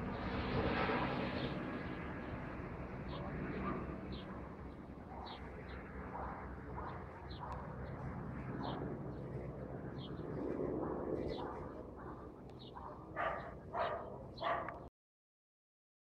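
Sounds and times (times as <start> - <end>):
low hum: 2.4 - 14.8
dog barking: 3.1 - 3.9, 6.1 - 7.7, 11.3 - 14.9.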